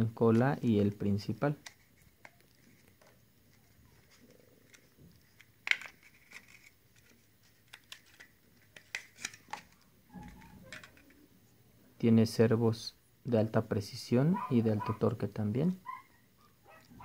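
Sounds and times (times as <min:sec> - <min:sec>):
plastic clicks and rustles: 0:01.5 - 0:11.2.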